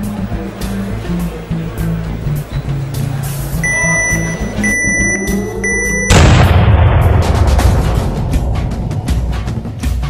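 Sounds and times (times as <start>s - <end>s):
high electronic beeps: 3.6s - 6.2s.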